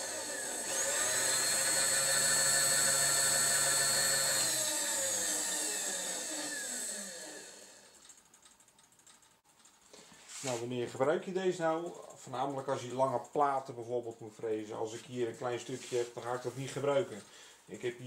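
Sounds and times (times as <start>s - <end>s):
electric motor whining: 0.0s - 8.0s.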